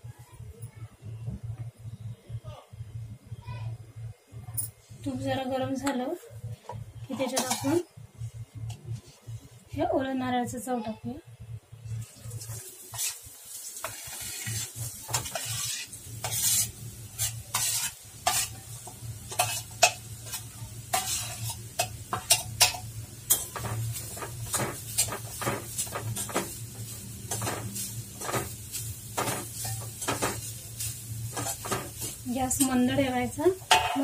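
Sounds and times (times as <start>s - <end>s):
low steady hum: 0.0s - 13.5s
light sizzle: 0.0s - 34.0s
spoon scraping steel pan: 7.2s - 7.8s, 12.9s - 13.2s, 13.8s - 18.6s, 19.3s - 23.8s.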